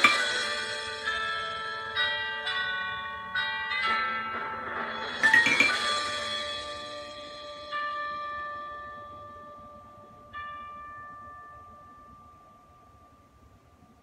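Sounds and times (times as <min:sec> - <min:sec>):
marimba notes ringing: 0:04.9 - 0:08.5.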